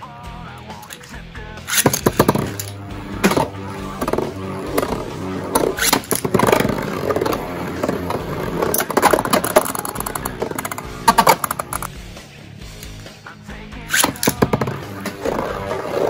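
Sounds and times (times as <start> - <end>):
spinning tops whirring and scraping: 0.7 - 13.2, 13.8 - 16.0
metal tops clacking together: 1.7 - 12.0, 13.9 - 15.7.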